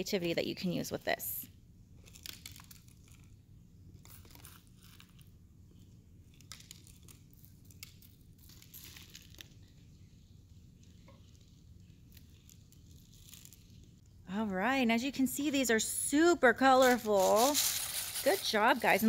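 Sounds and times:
dry rice rustling and scraping: 0:17.1 - 0:19.0.

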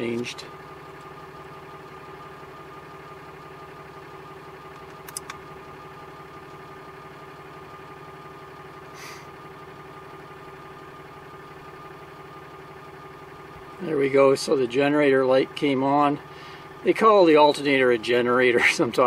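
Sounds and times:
truck engine idling: 0:00.0 - 0:19.0
sharp clicks: 0:04.8 - 0:05.4.

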